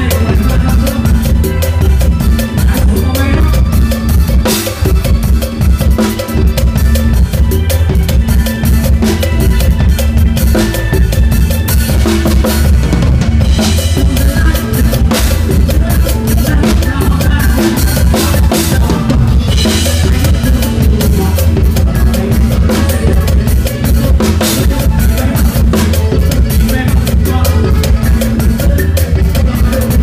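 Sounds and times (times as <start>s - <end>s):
band playing bass and instruments: 0.0s - 30.0s
drum kit beat: 0.0s - 30.0s.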